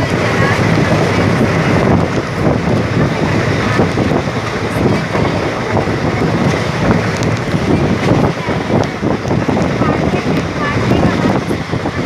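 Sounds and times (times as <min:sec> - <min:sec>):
train wheels rumbling on rails: 0:00.0 - 0:12.0
wind rushing over microphone: 0:00.0 - 0:12.0.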